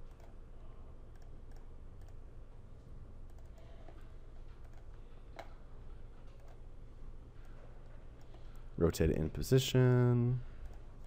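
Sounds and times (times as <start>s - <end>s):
steady low hum: 0.0s - 11.0s
mouse and keyboard clicks: 4.6s - 5.6s.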